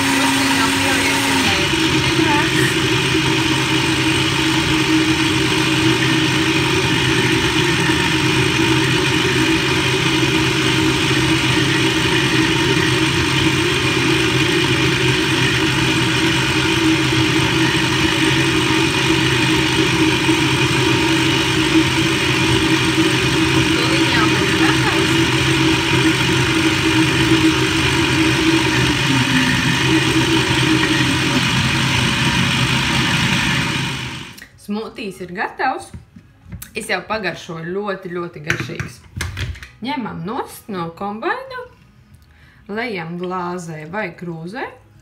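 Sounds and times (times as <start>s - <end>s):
blender running: 0.0s - 34.5s.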